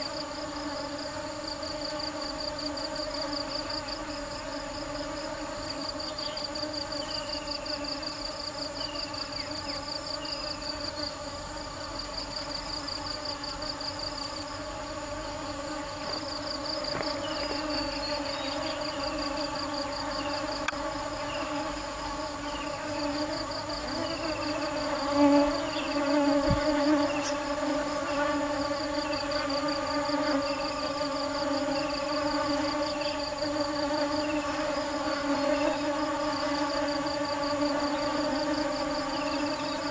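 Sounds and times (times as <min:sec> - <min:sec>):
high insect trill: 0:00.0 - 0:39.9
honeybees buzzing: 0:00.0 - 0:39.9.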